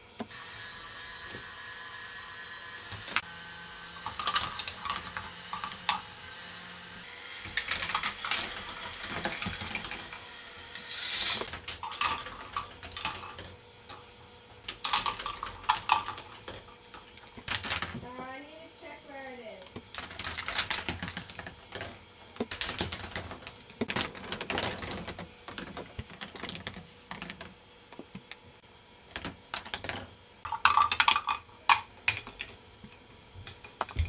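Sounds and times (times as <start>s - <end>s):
steady hum: 0.0s - 34.0s
plastic balls clattering along track: 4.0s - 6.2s, 7.5s - 18.1s, 19.7s - 27.5s, 29.1s - 34.0s.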